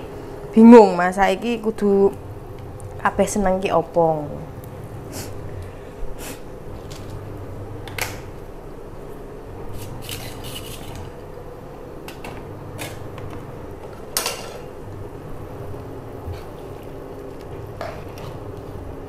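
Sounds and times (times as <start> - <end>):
low background hum: 0.0 - 19.0
utensils and pans clinking: 14.2 - 14.7.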